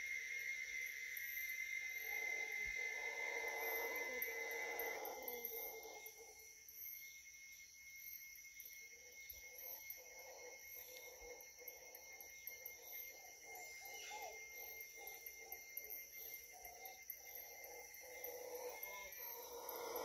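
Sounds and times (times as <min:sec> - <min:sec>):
insects trilling: 0:00.0 - 0:20.0
distant howler monkeys calling: 0:01.8 - 0:06.4, 0:09.5 - 0:20.0.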